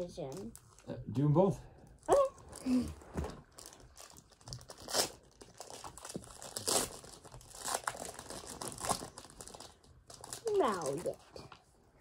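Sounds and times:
foil wrapper crinkling and tearing: 0:03.4 - 0:11.2.

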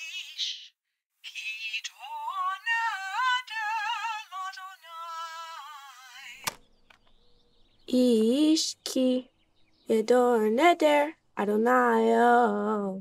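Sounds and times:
tape player click: 0:06.4 - 0:07.2.

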